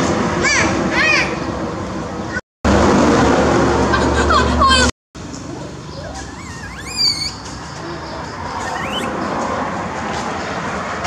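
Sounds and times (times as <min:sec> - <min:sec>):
monkey squealing: 0:05.6 - 0:09.3.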